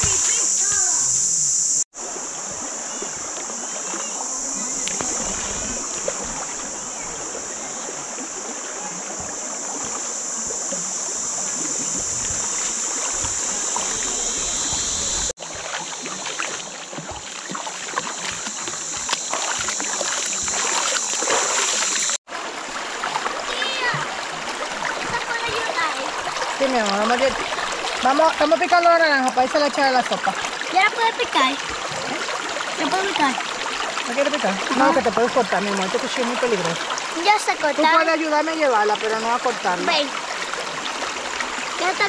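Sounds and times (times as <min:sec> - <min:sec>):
steady high-pitched hiss: 0:00.0 - 0:22.2
river water rushing: 0:04.8 - 0:28.7.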